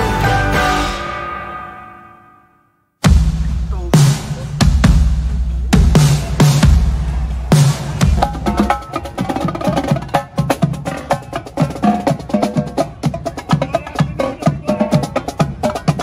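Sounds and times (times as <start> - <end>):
heavy-bass electronic music: 3.0 - 8.7
marching snare drums: 3.1 - 16.0.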